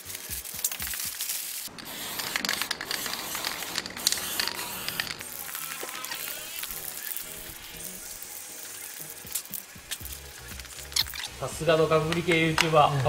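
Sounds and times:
aerosol spray can hissing: 1.3 - 11.4.

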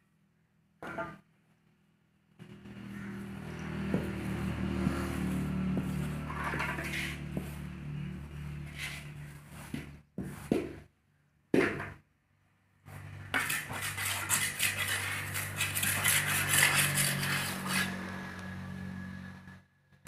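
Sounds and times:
trowel scraping concrete: 3.0 - 10.9, 12.9 - 18.2
trowel knocks: 11.5 - 12.0.

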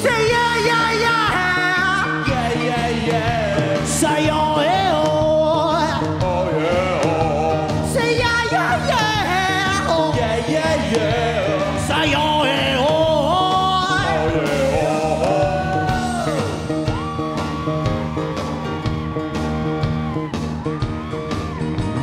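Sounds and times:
man singing: 0.0 - 16.8
live rock band playing: 0.0 - 22.0.

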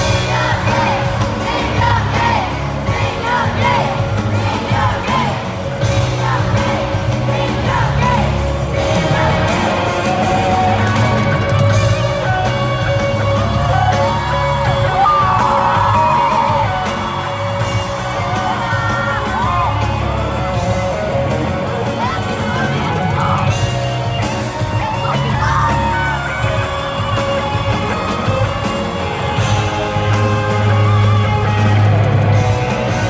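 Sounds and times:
person singing: 0.0 - 23.5
crowd yelling and singing along: 0.0 - 33.0
live concert music with heavy bass: 0.0 - 33.0.

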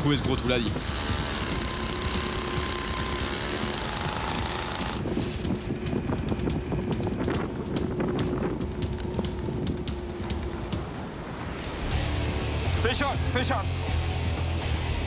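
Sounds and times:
ice auger engine drilling: 0.2 - 7.2.

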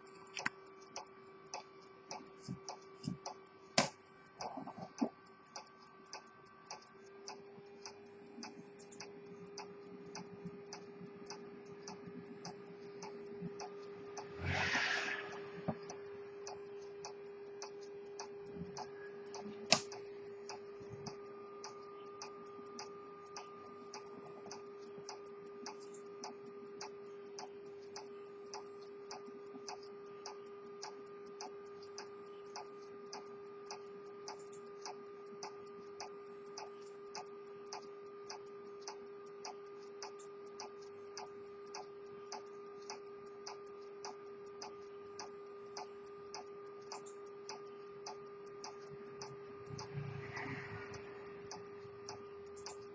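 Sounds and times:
pocket watch ticking: 0.0 - 52.9
sharp click: 0.0 - 52.9
steady hum: 0.0 - 52.9.

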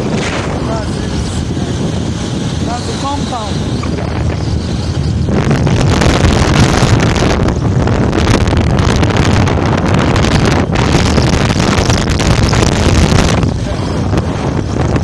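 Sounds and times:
vehicle running and road noise: 0.0 - 15.0
wind rush over microphone: 0.0 - 15.0.

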